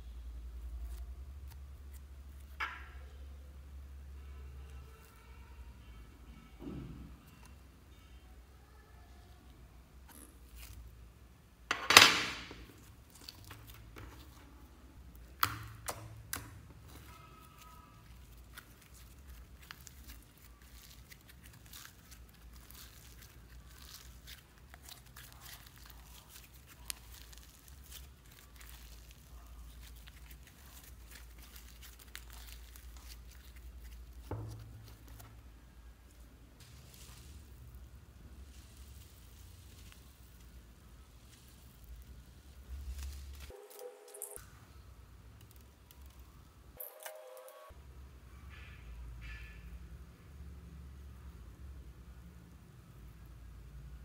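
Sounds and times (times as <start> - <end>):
slime crackling when stretched: 12.4 - 43.5.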